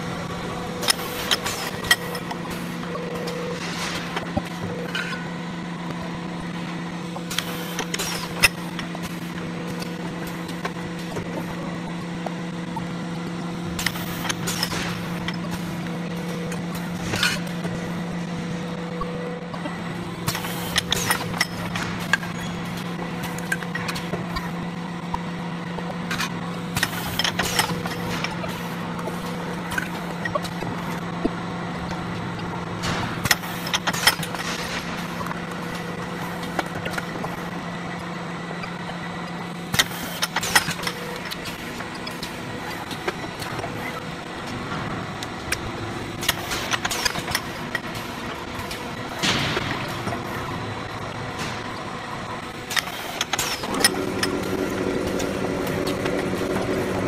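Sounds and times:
machine hum: 0.0s - 57.0s.

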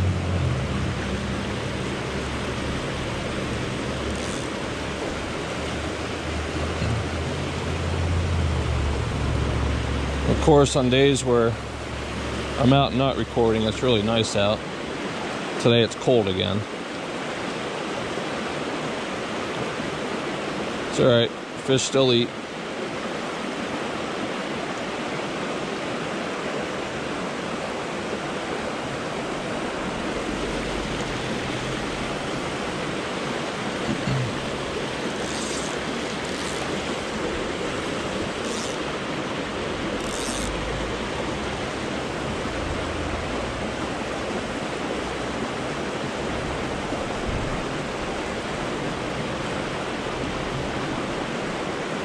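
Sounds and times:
creek water rushing over rocks: 0.0s - 52.0s.

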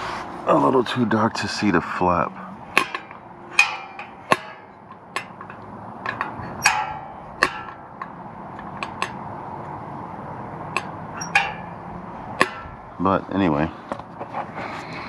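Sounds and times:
phone tapping metal exhaust tip: 2.6s - 13.0s.

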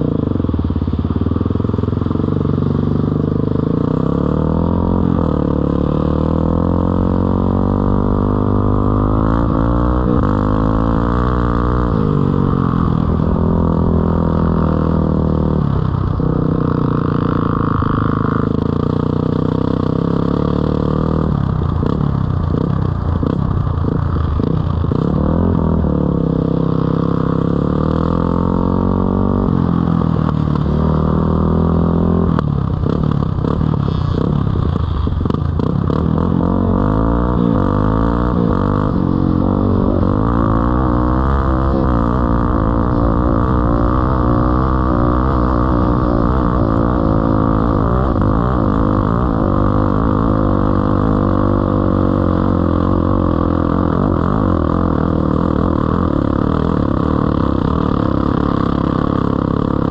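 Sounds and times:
dirt bike engine revving: 3.6s - 22.0s, 35.2s - 59.9s.

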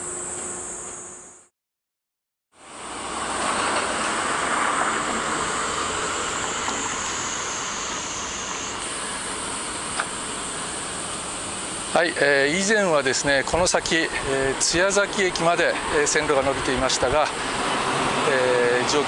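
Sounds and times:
thin high steady buzz: 0.0s - 1.5s, 2.6s - 19.0s
traffic rushing: 2.6s - 9.4s, 11.9s - 19.0s.

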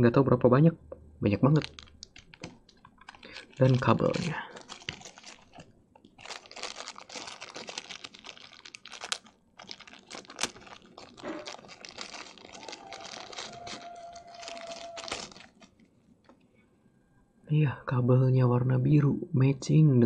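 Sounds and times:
plastic bag crinkling: 1.5s - 16.4s.

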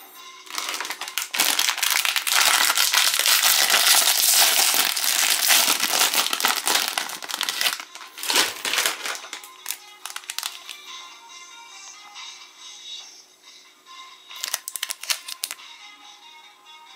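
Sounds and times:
plastic wrapper crinkling: 0.5s - 10.8s, 14.4s - 15.6s.

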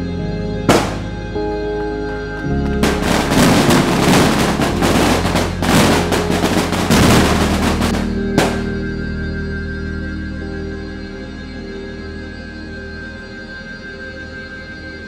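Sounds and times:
background music: 0.0s - 15.0s
firecrackers cracking: 0.7s - 1.2s, 2.7s - 8.8s.

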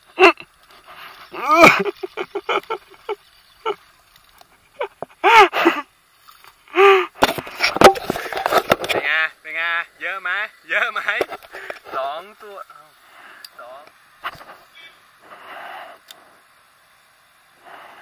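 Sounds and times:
rustling: 0.0s - 5.2s.

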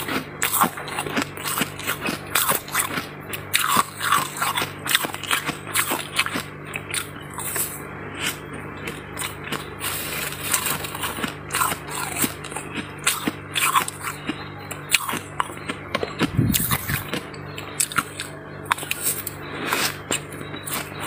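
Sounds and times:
faint low hum: 0.0s - 21.0s
ice crunching being chewed: 0.0s - 21.0s.

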